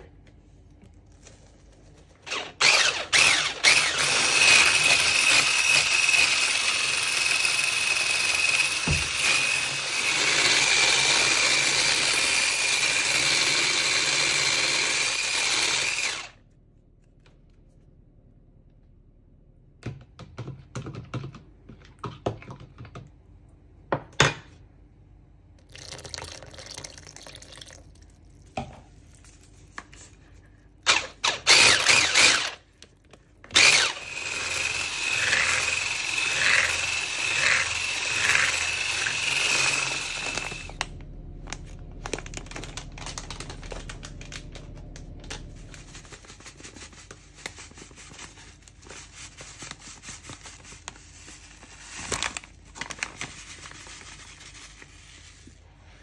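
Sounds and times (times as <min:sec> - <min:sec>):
electric hand mixer whine: 0:02.2 - 0:16.4, 0:30.9 - 0:32.6, 0:33.5 - 0:47.1.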